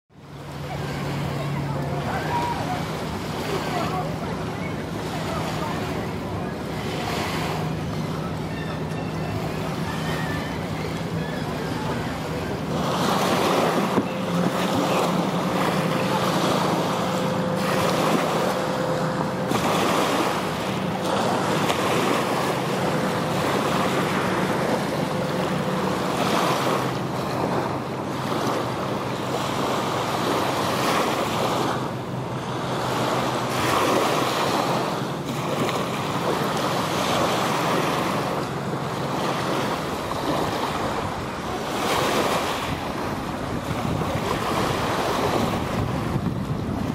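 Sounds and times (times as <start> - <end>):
choppy lake water: 0.1 - 46.9
motorboat engine hum: 0.1 - 46.9
wind buffeting microphone: 42.3 - 46.9.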